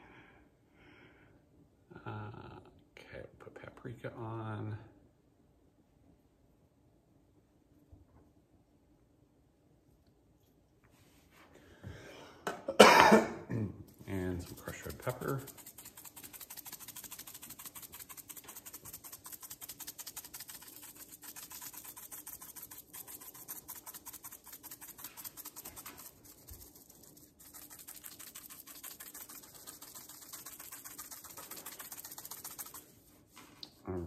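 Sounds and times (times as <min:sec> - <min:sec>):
pepper flakes rattling in shaker: 0:14.0 - 0:33.7.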